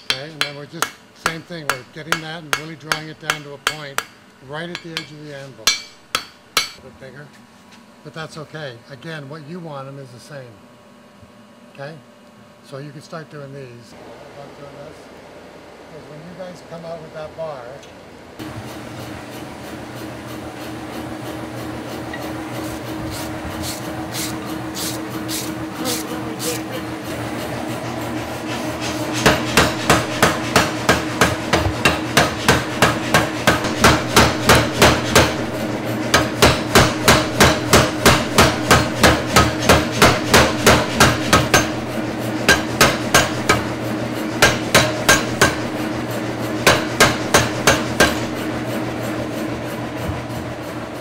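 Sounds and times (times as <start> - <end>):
air hammer pounding hot iron: 0.0 - 6.8, 21.4 - 49.2
steady machine hum: 0.0 - 51.0.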